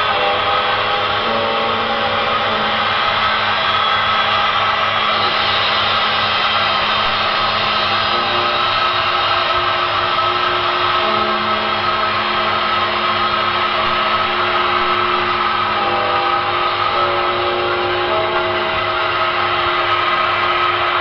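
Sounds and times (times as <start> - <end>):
dark ambient drone music: 0.0 - 21.0
low pulse: 0.0 - 21.0.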